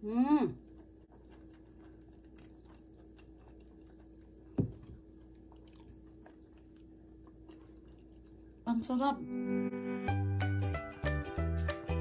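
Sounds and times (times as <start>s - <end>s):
faint steady hum: 0.0s - 9.6s.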